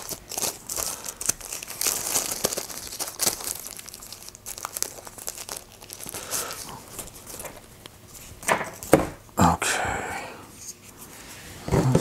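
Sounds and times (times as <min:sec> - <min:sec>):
plastic wrapping crinkling: 0:00.0 - 0:09.0.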